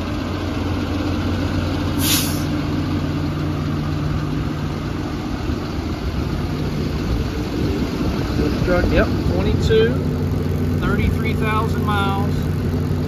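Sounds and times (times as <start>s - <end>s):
diesel engine idling: 0.0s - 13.0s
air release hiss: 2.0s - 2.5s.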